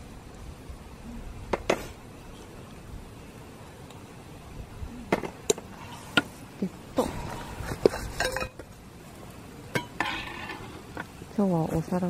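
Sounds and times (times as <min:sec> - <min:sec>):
metal cooking utensils clinking: 0:08.2 - 0:08.6.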